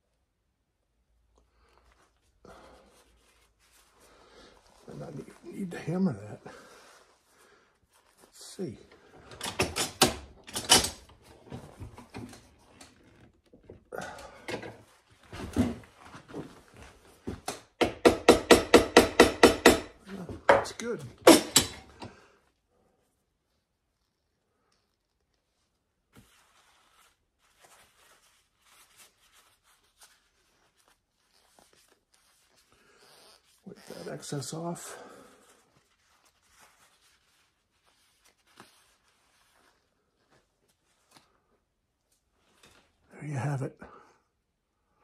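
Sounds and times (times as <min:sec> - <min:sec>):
paper towel rustling and rubbing: 0:01.5 - 0:09.1, 0:23.4 - 0:41.5
wooden knocks: 0:17.8 - 0:21.8.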